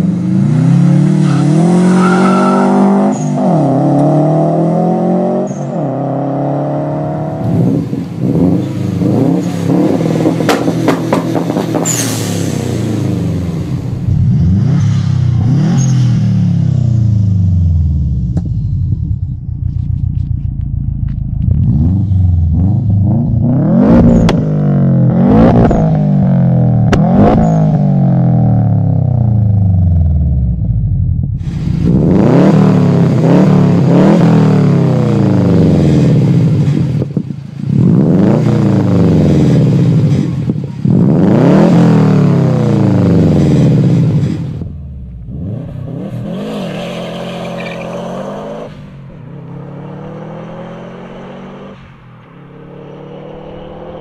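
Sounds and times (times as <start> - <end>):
car driving away: 0.0 - 54.0
car engine revving: 0.0 - 54.0
exhaust cracks: 18.2 - 24.6.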